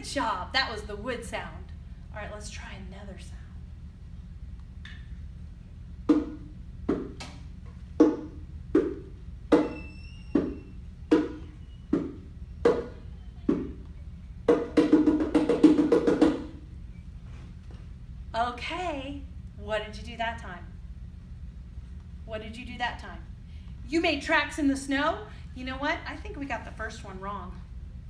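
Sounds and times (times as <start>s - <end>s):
bongo drums struck by hand: 6.1s - 7.2s, 8.0s - 9.8s, 10.4s - 13.8s, 14.5s - 16.6s.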